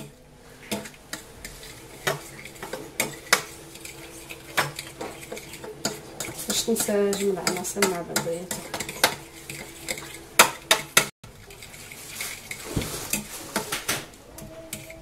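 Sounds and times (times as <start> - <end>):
fork scraping in glass dish: 0.7 - 7.6, 8.5 - 10.3, 14.6 - 15.0.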